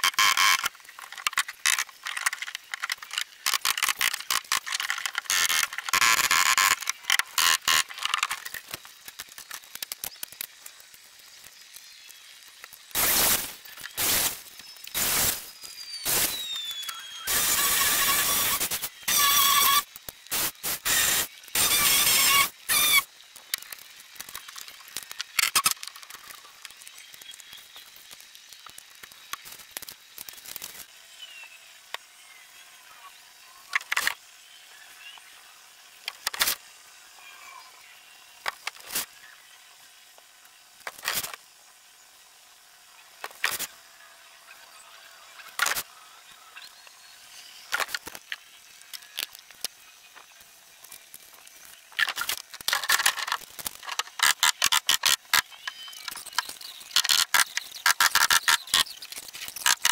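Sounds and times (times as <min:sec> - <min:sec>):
power tool bursts: 0:13.0 - 0:23.1.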